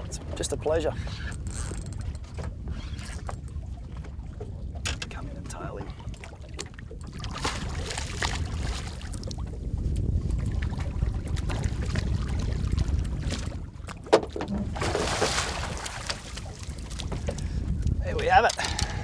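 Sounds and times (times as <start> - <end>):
wind and water rumble: 0.0 - 19.0
fish splashing at surface: 14.7 - 16.6.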